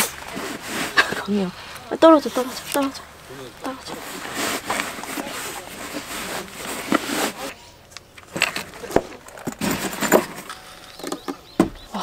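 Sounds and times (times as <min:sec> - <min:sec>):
packing rustling: 0:02.5 - 0:11.2.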